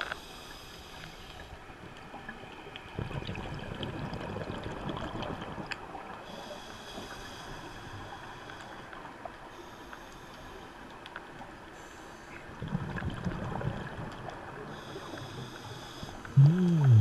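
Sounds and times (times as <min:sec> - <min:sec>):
underwater hiss: 0:06.2 - 0:10.7, 0:14.7 - 0:17.0.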